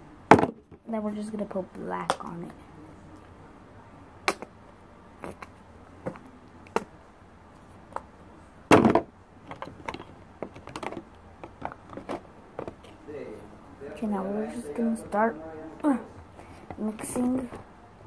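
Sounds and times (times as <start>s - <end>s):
plastic containers clicking and tapping: 8.7s - 13.0s.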